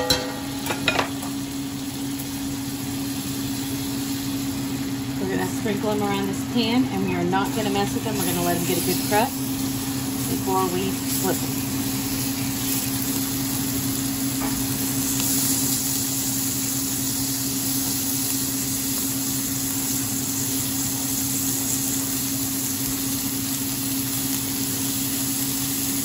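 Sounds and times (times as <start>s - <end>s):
steady low hum: 0.0s - 15.4s
steak sizzling in butter: 0.0s - 26.0s.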